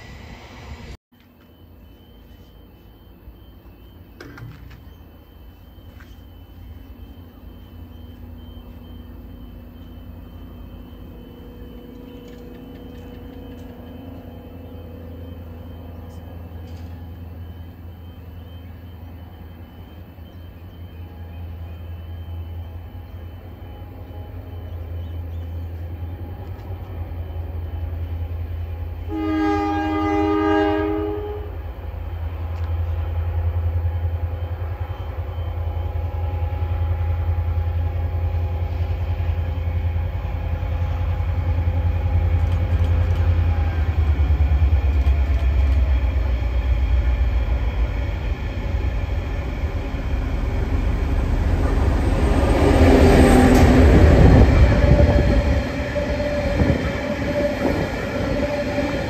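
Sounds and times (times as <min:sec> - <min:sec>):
diesel locomotive engine rumble: 0:00.0 - 0:59.0
multi-tone air horn blast: 0:29.1 - 0:31.6.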